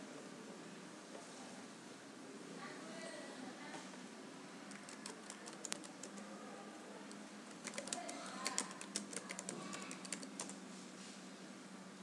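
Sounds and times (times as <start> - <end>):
computer keyboard keys clicking: 4.7 - 6.3, 7.5 - 10.6.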